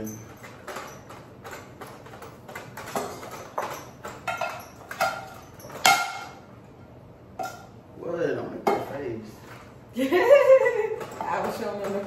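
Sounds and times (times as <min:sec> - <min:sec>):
cookware knocks with metallic ring: 0:03.0 - 0:06.4.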